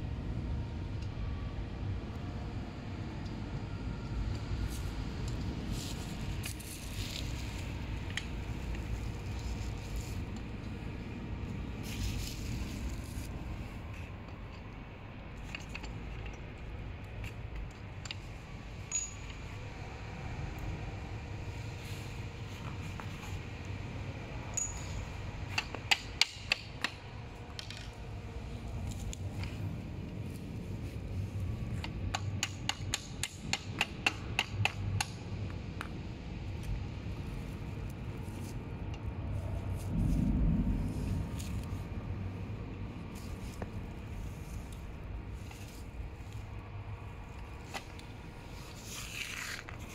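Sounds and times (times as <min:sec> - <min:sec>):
steady low hum: 0:00.0 - 0:49.9
small hammer tapping on metal: 0:32.1 - 0:35.2.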